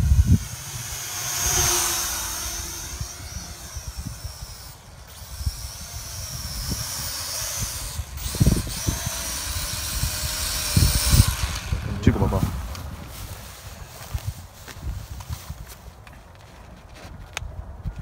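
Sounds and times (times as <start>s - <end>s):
drone propellers whining: 0.0s - 14.3s.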